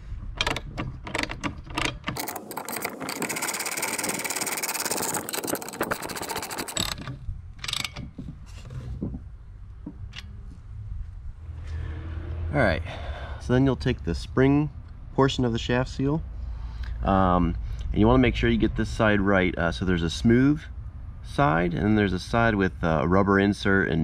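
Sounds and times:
socket ratchet clicking: 0:00.4 - 0:08.1.

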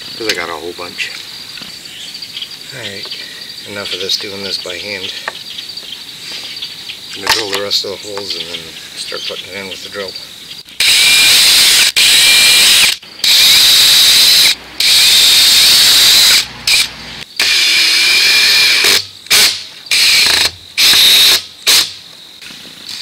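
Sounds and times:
cordless drill boring plastic tubing: 0:10.8 - 0:21.8.

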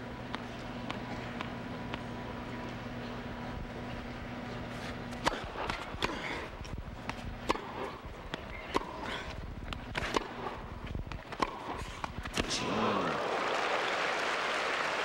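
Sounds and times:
racket hitting tennis ball: 0:04.8 - 0:12.6.

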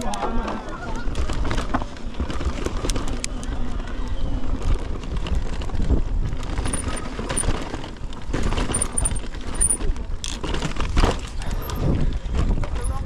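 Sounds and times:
bike tyres rumbling over stones: 0:00.0 - 0:13.0
bike chain rattling and clicking: 0:04.5 - 0:13.0.

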